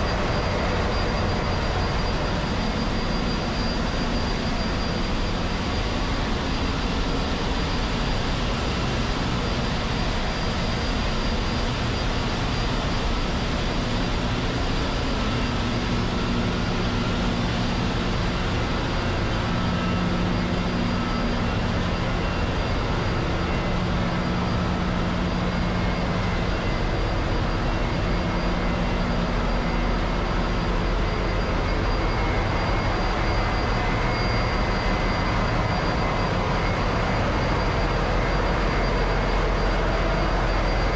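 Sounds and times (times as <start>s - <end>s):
thin high whine: 0.0s - 40.9s.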